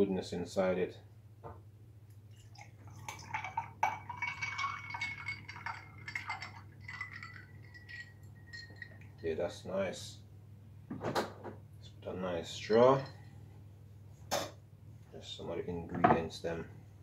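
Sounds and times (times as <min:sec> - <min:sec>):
juice trickling into glass: 0:02.3 - 0:09.2, 0:12.6 - 0:13.2
ice clinking against glass: 0:02.5 - 0:09.2, 0:12.6 - 0:13.2.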